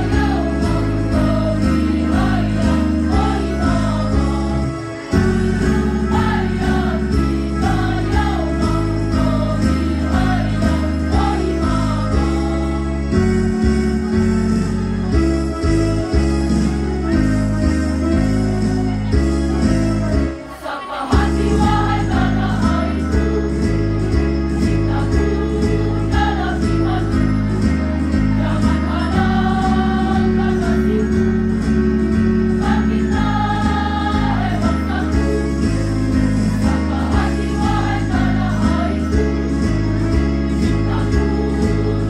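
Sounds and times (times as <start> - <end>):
women's choir singing: 0.0 - 13.2, 20.4 - 23.6, 24.7 - 31.5, 32.4 - 42.0
instrumental accompaniment with beat: 0.0 - 42.0.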